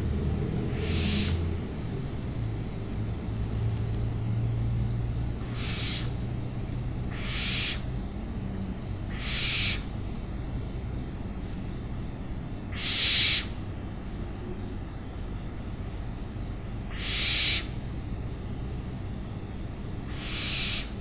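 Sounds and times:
owl screeching: 0.6 - 1.6, 5.4 - 6.2, 7.1 - 8.0, 9.1 - 10.0, 12.7 - 13.7, 16.9 - 17.8, 20.1 - 21.0.

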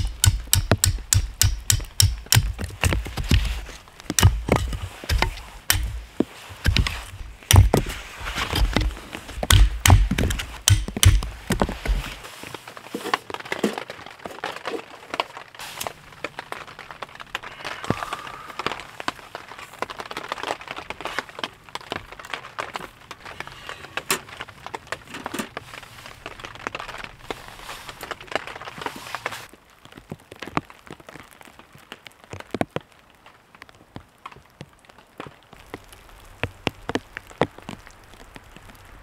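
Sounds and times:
wood clicks and knocks: 0.0 - 12.2.

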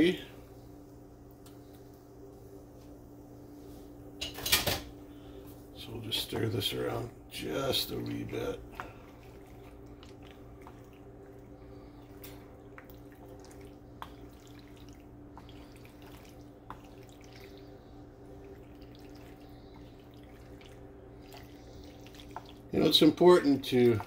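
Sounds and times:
low hum: 0.0 - 24.0
wooden spoon stirring pasta in pan: 6.1 - 24.0.

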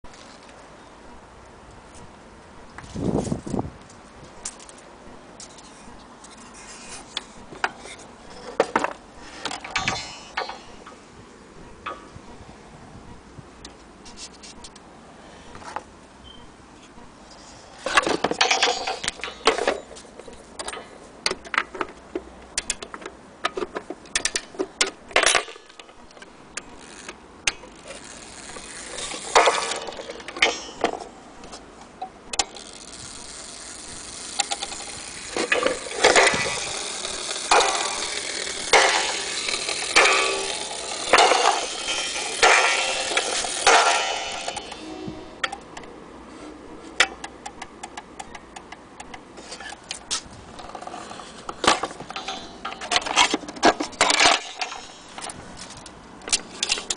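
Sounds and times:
clock striking coil gong: 39.0 - 45.6
clock clicks and knocks: 47.0 - 49.3.

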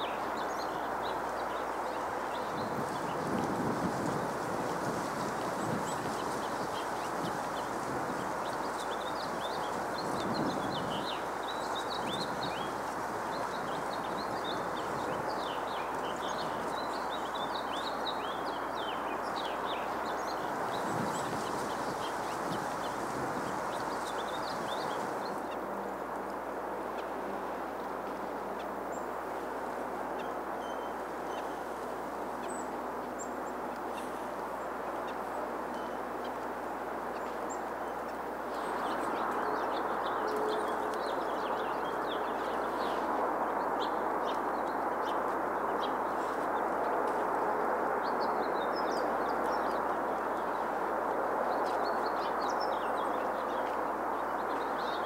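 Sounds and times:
small birds chirping: 0.0 - 25.6, 37.1 - 47.2
steady background hiss: 0.0 - 55.0.

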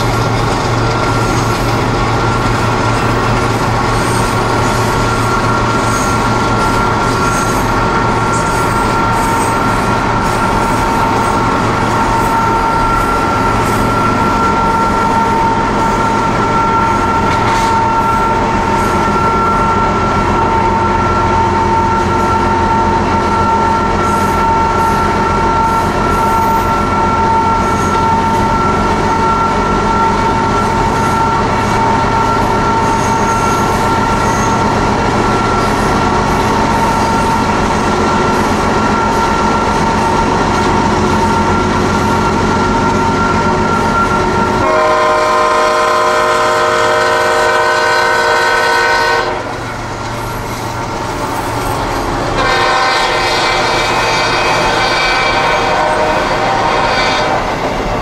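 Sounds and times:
freight train rolling past: 0.0 - 58.0
locomotive horn chord: 44.6 - 49.7, 52.3 - 57.6.

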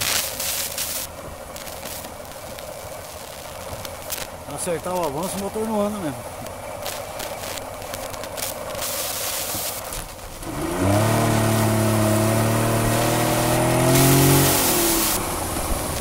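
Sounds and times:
outboard motor revving: 10.3 - 16.0.

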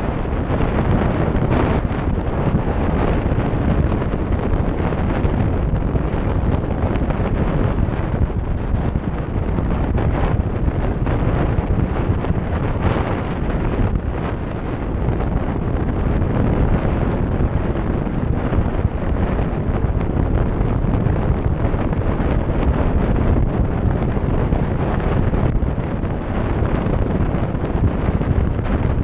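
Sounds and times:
motorcycle riding: 0.0 - 29.0
wind buffeting microphone: 0.0 - 29.0.

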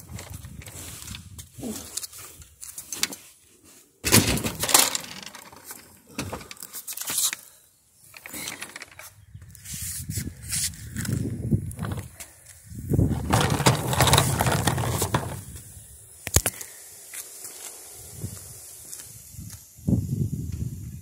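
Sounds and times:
seat knocking and scraping: 11.7 - 12.2, 13.0 - 15.5.

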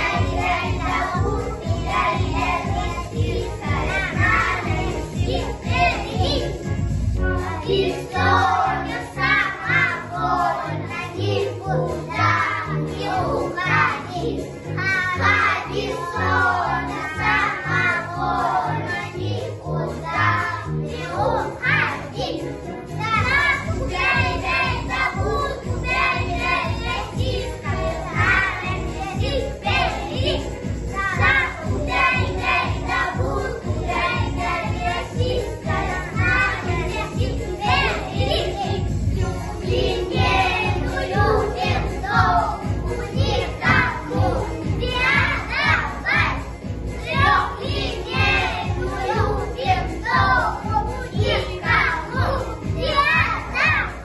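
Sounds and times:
instrumental accompaniment with bass beat: 0.0 - 8.6, 22.2 - 54.0
children singing folk song: 0.0 - 54.0.

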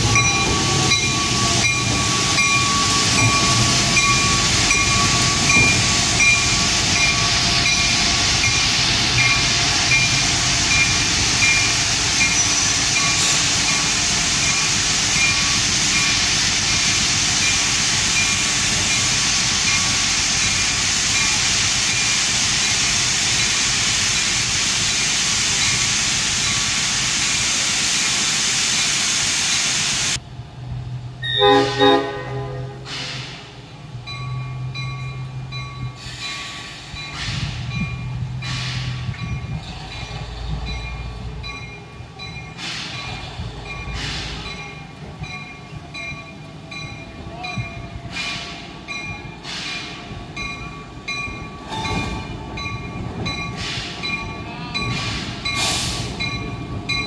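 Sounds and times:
locomotive bell ringing: 0.0 - 24.4, 34.0 - 38.3, 39.2 - 57.0
locomotive horn blasts: 31.2 - 33.0.

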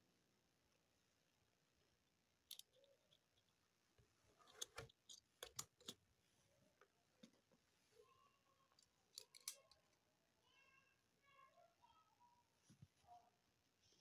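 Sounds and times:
plastic parts clicking: 2.4 - 3.5, 4.4 - 6.0, 8.7 - 10.0.

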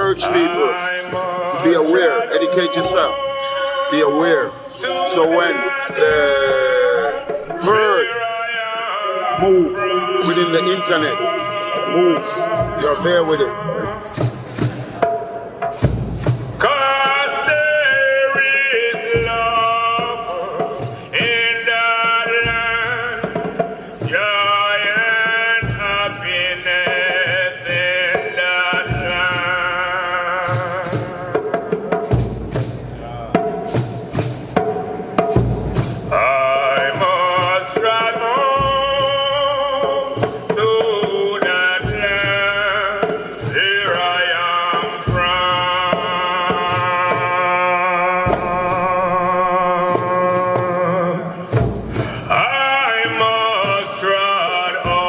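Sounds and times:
hand drums beating: 0.0 - 8.2, 9.3 - 55.0
man singing chant-like notes: 0.0 - 15.0, 16.5 - 31.7, 36.1 - 55.0.

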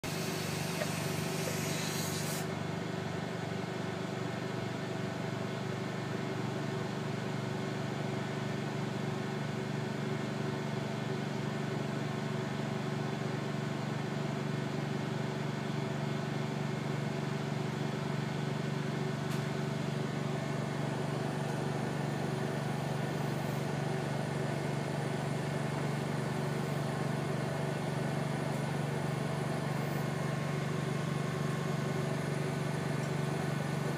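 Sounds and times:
air compressor humming: 0.0 - 2.6, 19.7 - 33.9
sharp hiss of air: 0.1 - 2.5.

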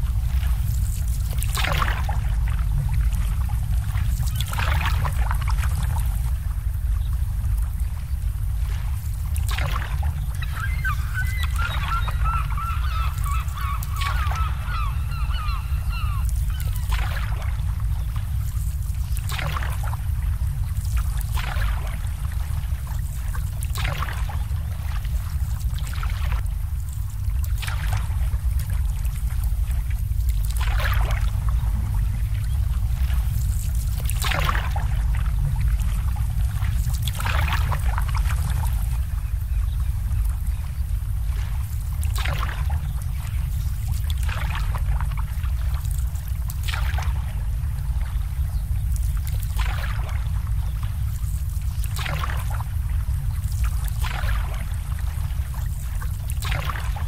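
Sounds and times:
low rumble: 0.0 - 57.0
water splashes: 0.0 - 57.0
bird calling: 10.3 - 17.2.

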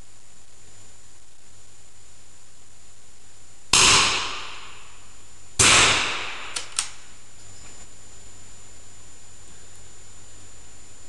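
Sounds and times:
rifle shots cracking: 3.8 - 4.8, 5.6 - 7.0.

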